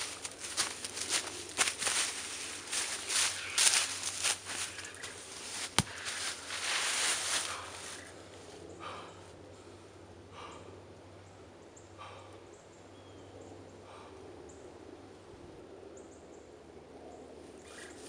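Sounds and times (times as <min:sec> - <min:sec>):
footsteps in dry leaves: 0:00.0 - 0:08.2
leaves crackling: 0:00.0 - 0:08.2
faint low hum: 0:00.0 - 0:18.0.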